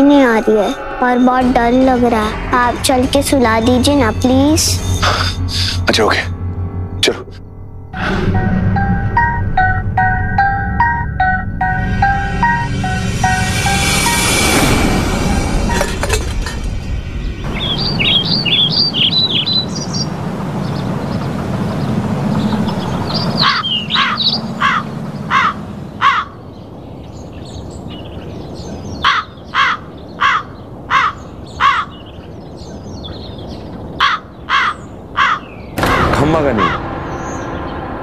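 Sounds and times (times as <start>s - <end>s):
steady background noise: 0.0s - 38.0s
small birds chirping: 17.3s - 35.9s
crows cawing: 23.4s - 26.4s, 29.0s - 32.0s, 34.0s - 36.9s.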